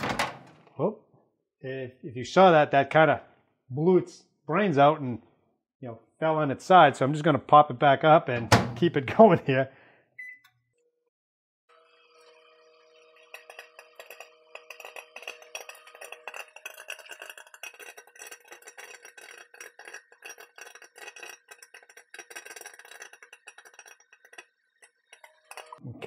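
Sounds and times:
microwave oven hum: 11.7s - 14.6s
popcorn popping: 13.0s - 25.8s.

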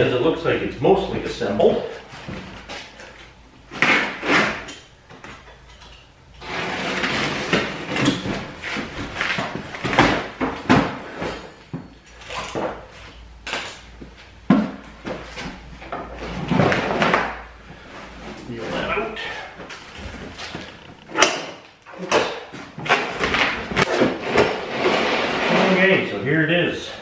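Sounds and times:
knocks and thumps on box: 14.5s - 15.6s.

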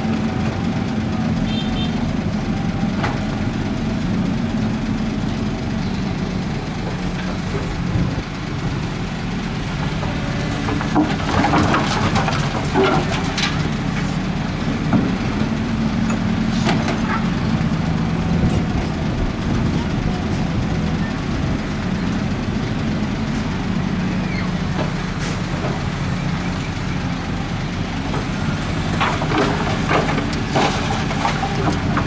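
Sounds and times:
excavator diesel engine running: 0.0s - 32.0s.

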